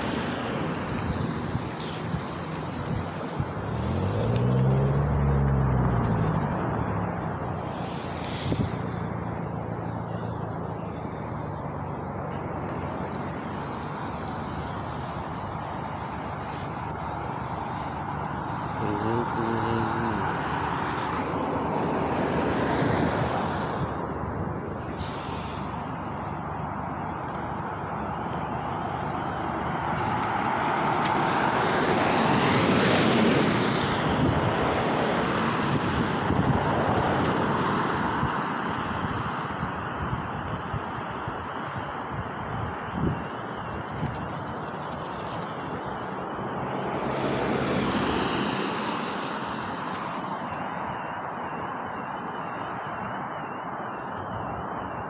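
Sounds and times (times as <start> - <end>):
street traffic: 0.0 - 55.0
low engine hum: 2.5 - 22.1
bus driving past: 42.8 - 55.0.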